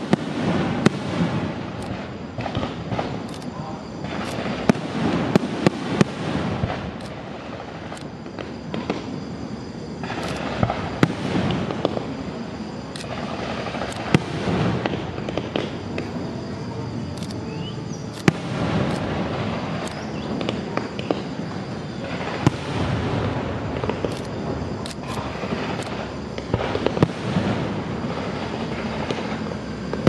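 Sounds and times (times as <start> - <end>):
firework shells bursting: 0.0 - 9.2, 10.0 - 16.2
fireworks crackling and rumble: 0.0 - 30.0.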